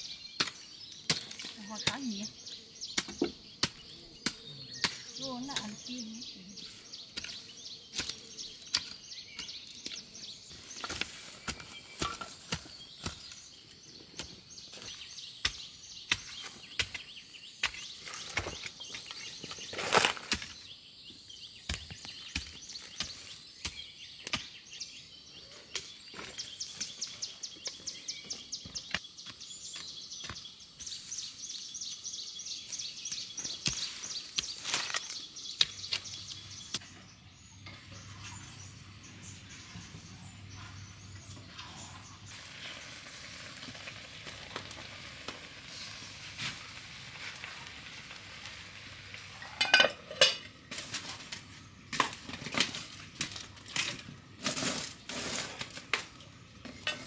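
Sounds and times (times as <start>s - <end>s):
bird chirping: 0.0s - 43.7s
hoe chopping into soil: 14.2s - 20.6s.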